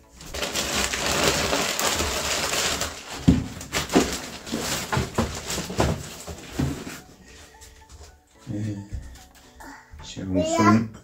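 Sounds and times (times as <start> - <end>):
packing materials crinkling: 0.0 - 7.1.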